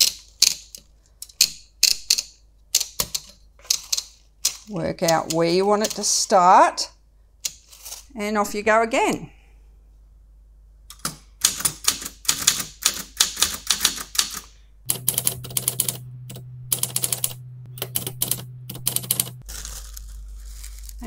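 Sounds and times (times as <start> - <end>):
typewriter keys clacking: 0.0 - 6.2, 10.9 - 19.4
low steady hum: 14.6 - 21.0.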